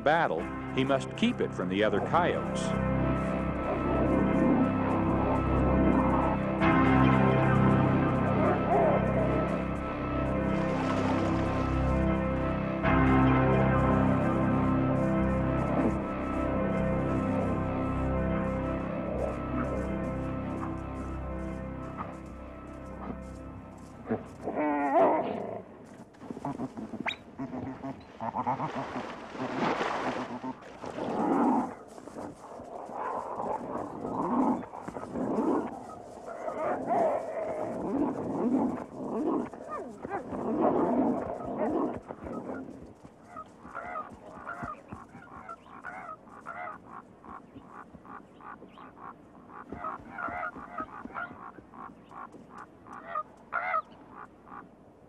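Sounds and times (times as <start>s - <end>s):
ravens croaking: 0.0s - 54.8s
animals snarling and growling: 24.0s - 25.7s, 26.3s - 44.5s.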